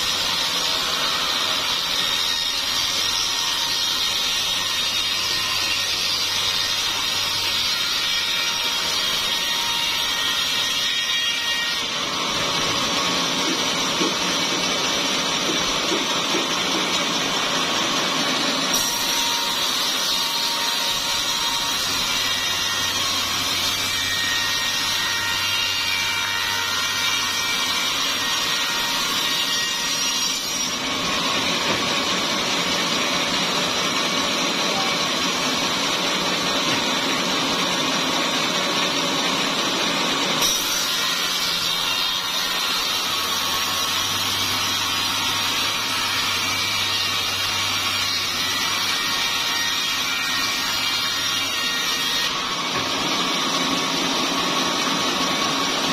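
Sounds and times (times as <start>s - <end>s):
saw blade cutting wood: 0.0s - 55.9s.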